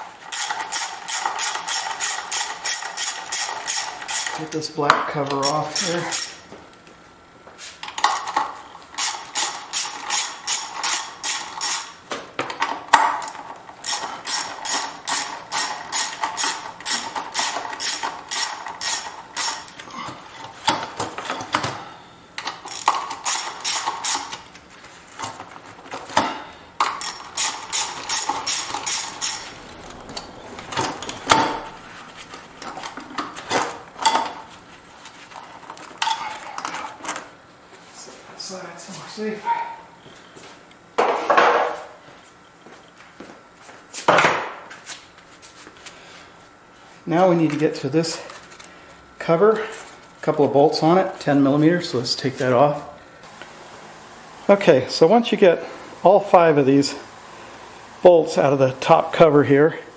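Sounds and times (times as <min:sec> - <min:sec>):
ratchet wrench clicking: 0:00.3 - 0:04.6, 0:05.4 - 0:06.4, 0:09.0 - 0:12.0, 0:13.2 - 0:19.8, 0:22.7 - 0:24.4, 0:26.8 - 0:29.6.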